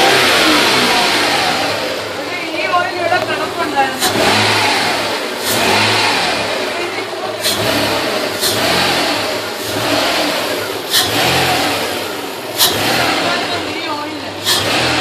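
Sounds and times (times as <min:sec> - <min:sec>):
air intake noise: 0:00.0 - 0:15.0
car engine revving: 0:00.0 - 0:15.0.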